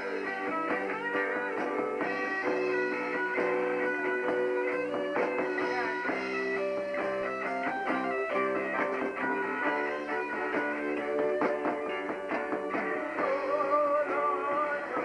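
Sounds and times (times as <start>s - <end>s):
electric guitar: 0.0s - 15.0s
rock band playing live: 0.0s - 15.0s.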